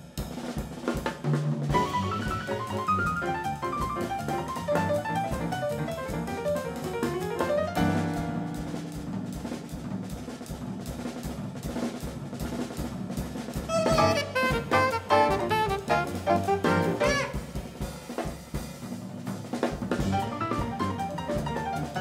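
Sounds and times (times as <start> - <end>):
jazz band playing: 1.5 - 18.6, 19.5 - 22.0
cymbals: 13.2 - 19.0
alto saxophone: 13.6 - 17.8.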